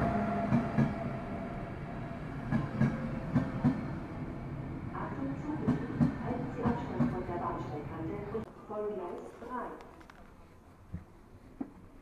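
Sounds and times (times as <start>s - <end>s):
train rolling rumble: 0.0s - 8.5s.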